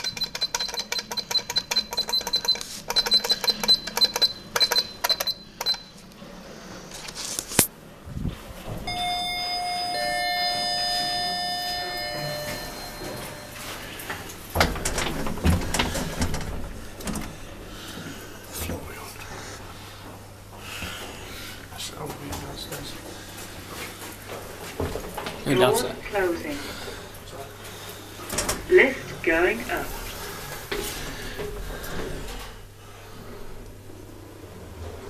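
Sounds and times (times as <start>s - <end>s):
rapid electric bell ringing: 8.9s - 14.2s
steady held tones: 8.9s - 14.3s
knocks and clatter: 14.5s - 17.3s.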